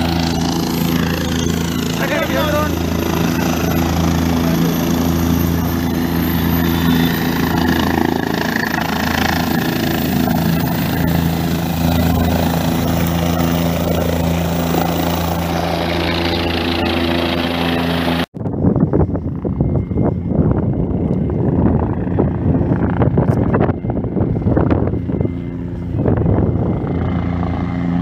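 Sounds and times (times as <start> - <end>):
helicopter engine and rotor: 0.0 - 28.0.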